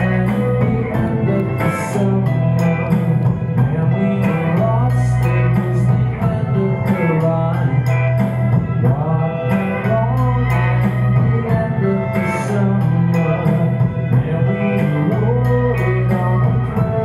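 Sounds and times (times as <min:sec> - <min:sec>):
percussive beat: 0:00.0 - 0:10.2
electric guitar: 0:00.0 - 0:17.0
man singing: 0:00.0 - 0:17.0.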